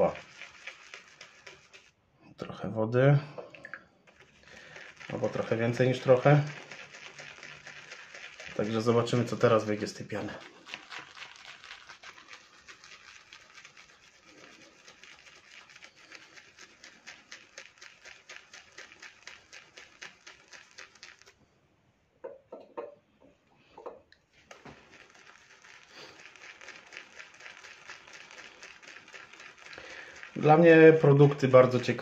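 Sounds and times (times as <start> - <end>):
shaving brush whipping lather: 0.0 - 2.0, 4.1 - 21.4, 24.4 - 32.0.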